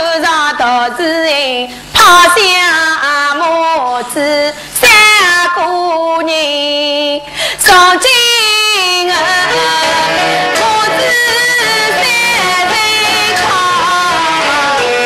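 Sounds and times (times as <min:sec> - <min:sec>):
woman singing lament: 0:00.0 - 0:15.0
singer breaths: 0:01.7 - 0:02.0, 0:04.5 - 0:04.8, 0:07.2 - 0:07.7.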